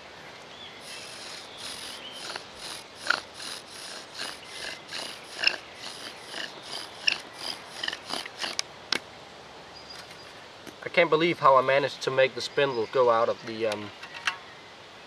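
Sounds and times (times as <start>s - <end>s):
wooden spindle squeaking and rasping: 0.8s - 8.6s.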